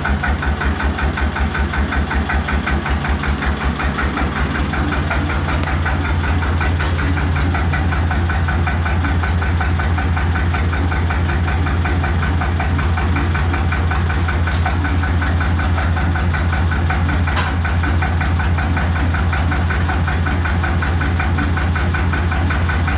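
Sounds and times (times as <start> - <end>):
fast even engine knock: 0.0 - 22.9
tractor engine idling: 0.0 - 22.9.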